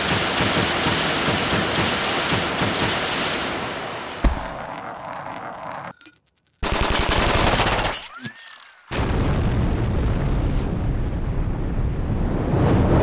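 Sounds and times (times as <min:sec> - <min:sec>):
machine-gun fire: 0:06.6 - 0:08.0
big explosion: 0:08.9 - 0:13.0.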